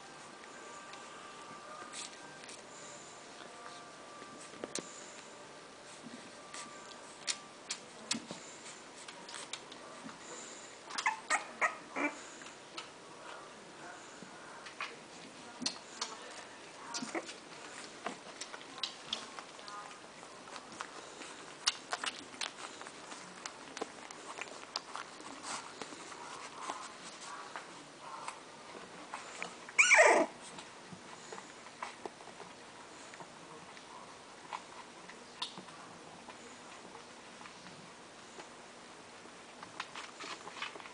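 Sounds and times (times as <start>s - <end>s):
puppy squeaks: 10.9s - 12.2s, 29.8s - 30.3s
puppies clicking and ticking: 10.9s - 13.0s, 15.6s - 33.3s, 34.4s - 37.6s.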